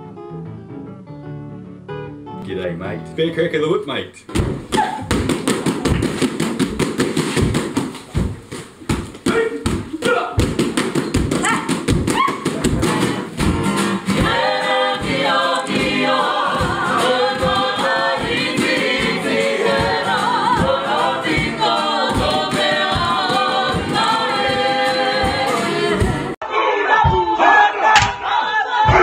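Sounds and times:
women singing in unison: 0:14.1 - 0:29.0.

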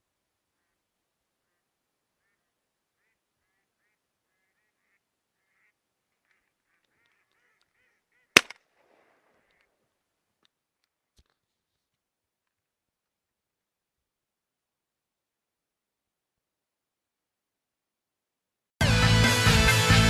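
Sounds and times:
ducks quacking faintly: 0:00.3 - 0:08.4
shotgun shot with echo: 0:08.4 - 0:09.2.

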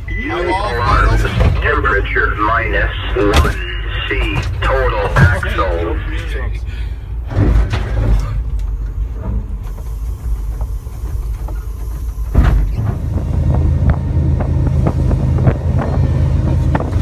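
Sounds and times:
low hum and clatter: 0:00.0 - 0:17.0
train rumble in cab: 0:00.0 - 0:17.0
loud thump: 0:12.3 - 0:14.0.

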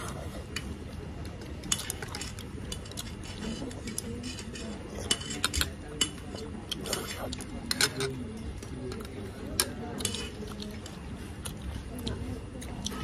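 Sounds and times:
utensils clinking on ceramic bowl: 0:01.6 - 0:11.0.

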